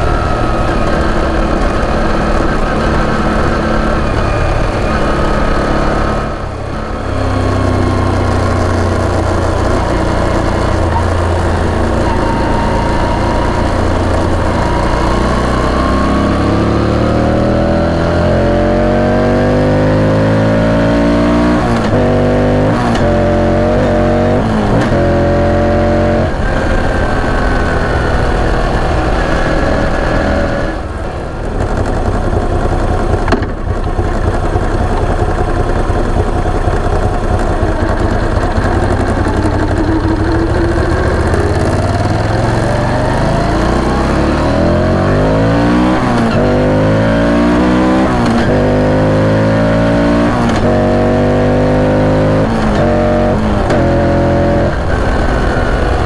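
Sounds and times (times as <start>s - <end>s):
motorcycle engine and exhaust: 0.0s - 56.0s
sharp knock: 33.1s - 33.8s.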